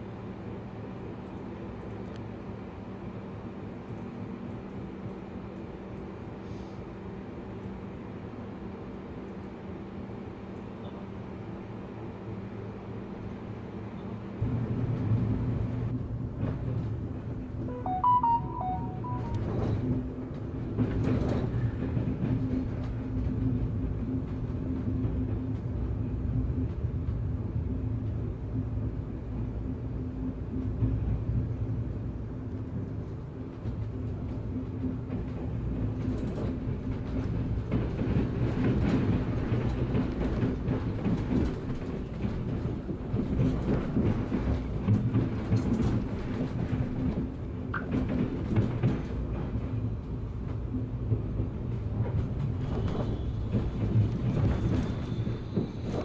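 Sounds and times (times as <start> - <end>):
train wheels rumbling on track: 0.0 - 17.8, 18.7 - 56.0
wheels clattering over tracks: 33.7 - 56.0.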